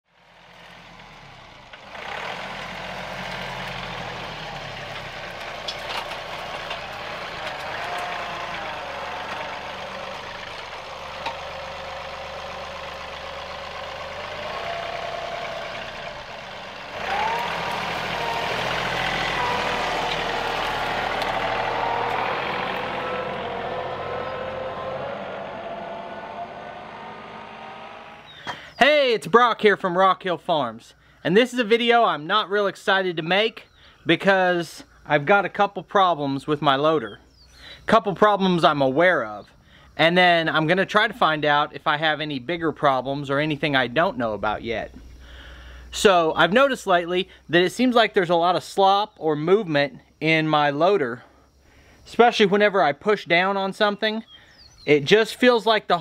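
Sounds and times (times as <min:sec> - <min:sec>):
tractor engine whining under load: 0:00.1 - 0:28.8, 0:53.4 - 0:56.0.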